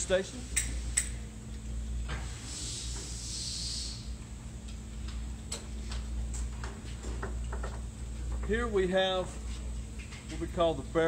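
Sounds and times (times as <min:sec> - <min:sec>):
hiss: 0:02.2 - 0:04.2.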